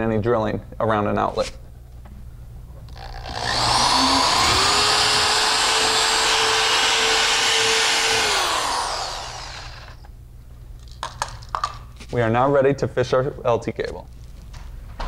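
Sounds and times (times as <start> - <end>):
cordless drill boring through drywall: 3.0 - 10.1.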